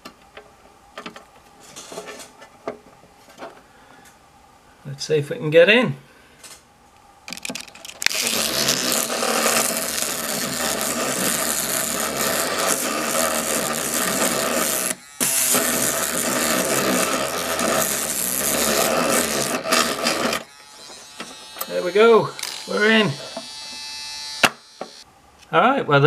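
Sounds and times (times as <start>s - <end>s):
electric toothbrush buzzing: 8.0s - 25.1s.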